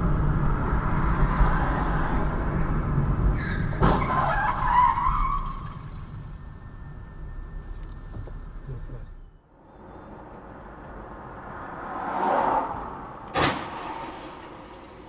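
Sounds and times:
road noise inside car: 0:00.0 - 0:15.0
tyres screeching: 0:03.3 - 0:14.8
car collision bang: 0:03.6 - 0:04.7, 0:13.2 - 0:15.0.

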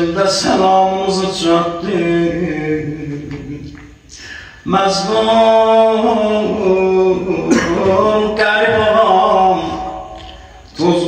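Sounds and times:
man chanting: 0:00.0 - 0:04.0, 0:04.6 - 0:11.0.

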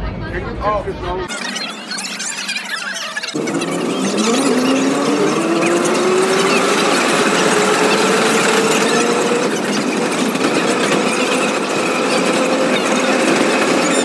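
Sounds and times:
gear whine: 0:01.3 - 0:14.0
train wheels on rails: 0:03.5 - 0:14.0.

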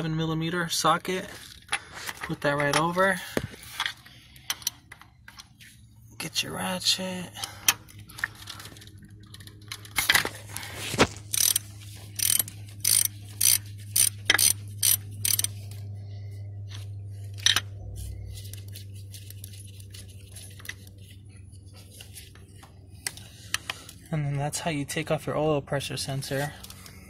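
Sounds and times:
hand ratchet clicking: 0:11.3 - 0:15.6.

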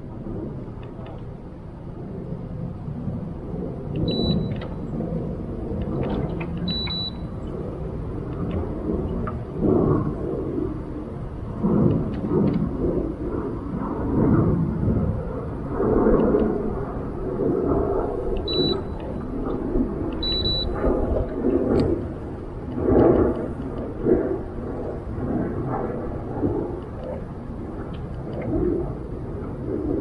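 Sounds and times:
wind buffeting microphone: 0:00.0 - 0:30.0
short high electronic beeps: 0:04.1 - 0:04.6, 0:06.7 - 0:07.2, 0:18.5 - 0:19.0, 0:20.2 - 0:20.8.

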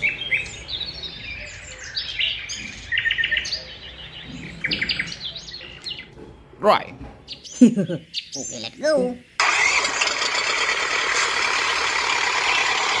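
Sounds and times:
small birds chirping and trilling: 0:00.0 - 0:09.4.

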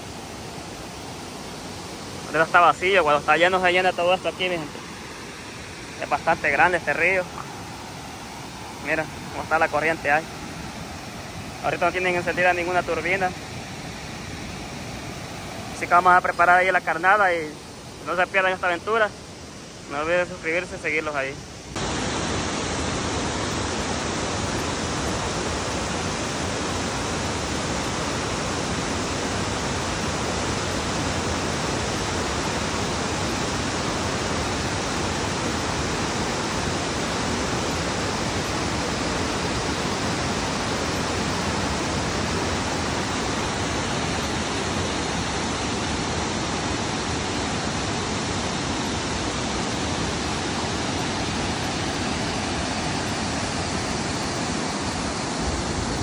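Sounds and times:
river water rushing over dam: 0:00.0 - 0:56.0.

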